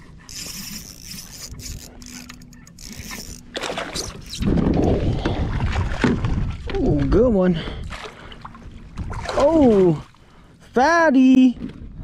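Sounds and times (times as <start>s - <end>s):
gear scraping and knocking: 0.3s - 4.8s.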